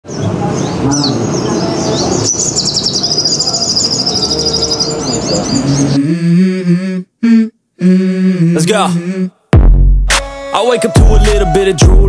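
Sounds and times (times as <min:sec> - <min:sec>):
bird chirping and trilling: 0:00.0 - 0:06.0.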